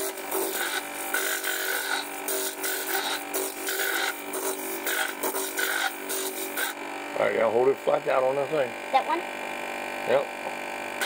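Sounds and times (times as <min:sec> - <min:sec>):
stone scraping on grinding disc: 0:00.0 - 0:06.8
motor humming: 0:00.0 - 0:11.0.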